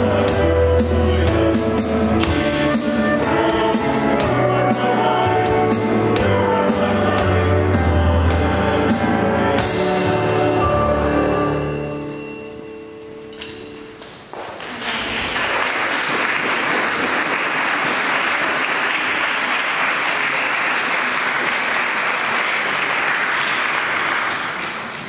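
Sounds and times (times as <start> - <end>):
audience applause: 14.3 - 25.0.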